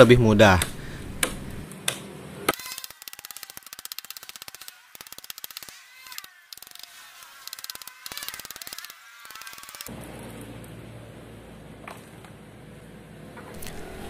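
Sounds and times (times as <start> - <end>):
machete chopping tree trunk: 0.6 - 2.8.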